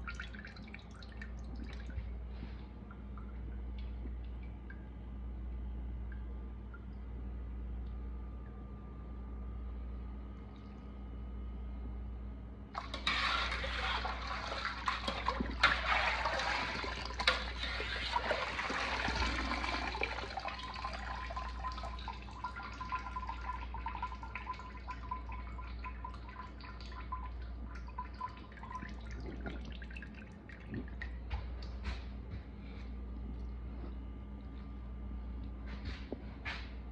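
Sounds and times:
water pouring and dripping: 0.0 - 2.2, 12.8 - 32.0.

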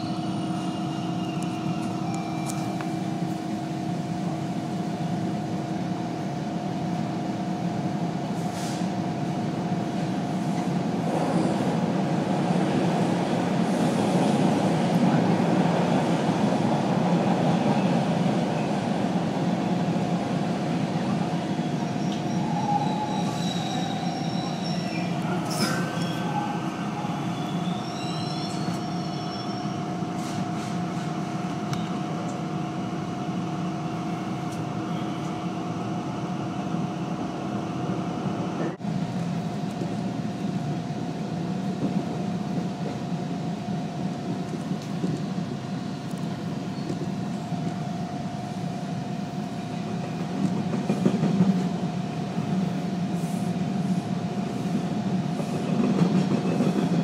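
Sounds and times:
train wheels rumbling on rail: 0.0 - 57.0
wheel squeals: 21.6 - 30.4.

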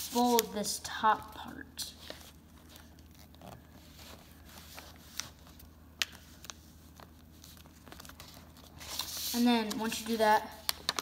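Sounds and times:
paper being folded and creased: 2.0 - 11.0.

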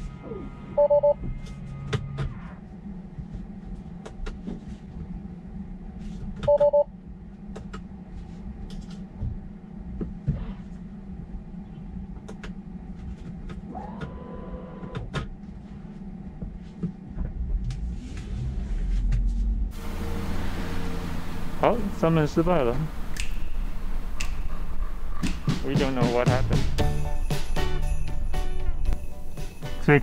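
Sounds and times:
steady low hum: 0.0 - 30.0
high rising tone: 19.6 - 29.4.

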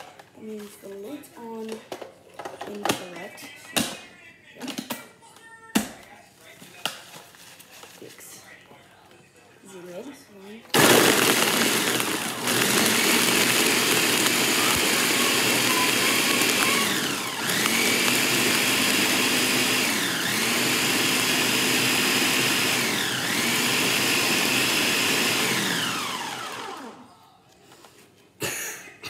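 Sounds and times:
blender crushing ice: 10.7 - 27.0.

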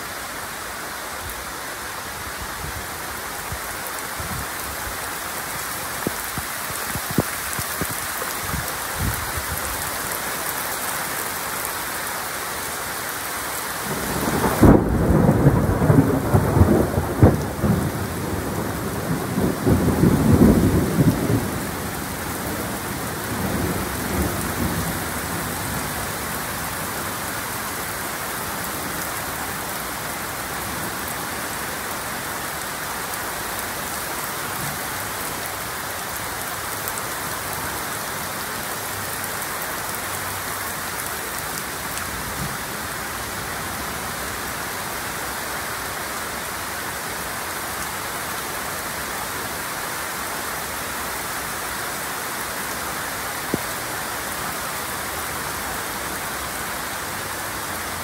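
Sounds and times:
heavy rain: 0.0 - 58.0
thunder rumbling: 13.9 - 26.0.

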